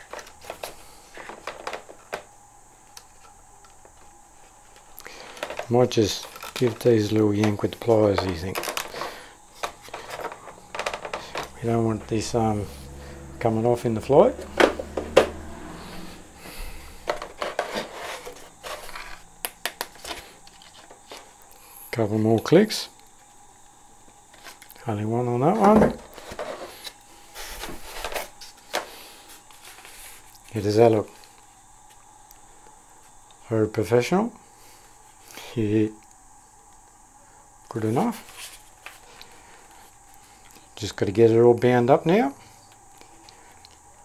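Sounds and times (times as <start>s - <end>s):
rubbing and scraping handling: 4.4s - 12.9s, 15.9s - 21.4s.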